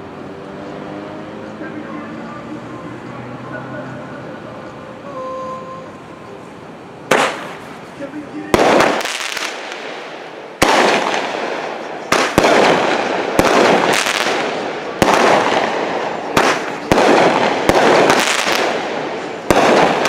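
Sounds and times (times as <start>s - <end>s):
fireworks bangs: 7.0s - 20.0s
fireworks crackling and fizzing: 7.1s - 20.0s.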